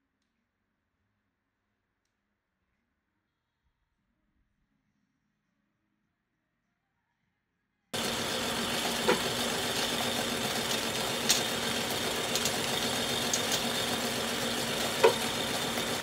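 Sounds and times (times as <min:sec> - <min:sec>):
kitchen appliances humming: 0:08.0 - 0:16.0.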